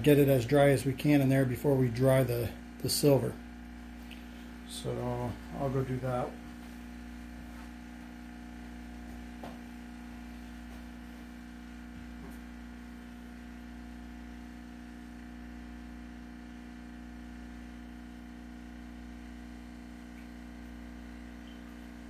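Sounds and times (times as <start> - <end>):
electrical hum: 0.0 - 22.0.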